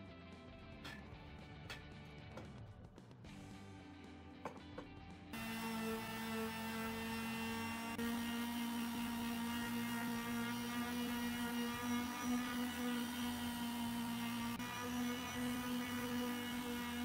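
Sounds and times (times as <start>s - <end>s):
electric palm sander on wood: 5.4s - 17.0s.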